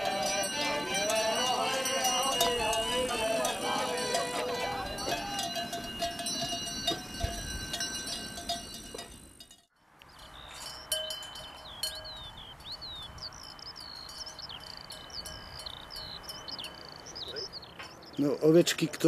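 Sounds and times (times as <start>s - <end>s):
sheep bells clanking: 0.0s - 17.1s
birds chirping: 0.0s - 19.0s
high insect tone: 12.6s - 17.2s.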